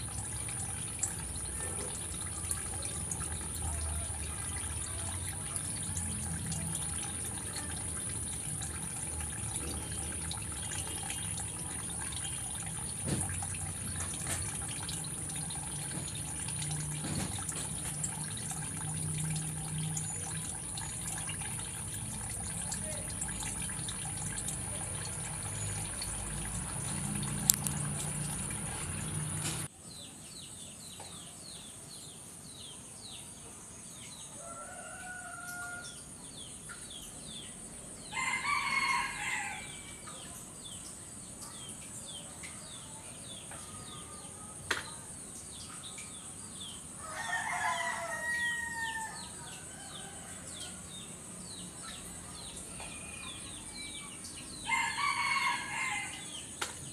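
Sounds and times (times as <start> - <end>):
rooster crowing: 34.4 - 35.9, 38.1 - 39.9, 47.0 - 50.9, 54.6 - 56.4.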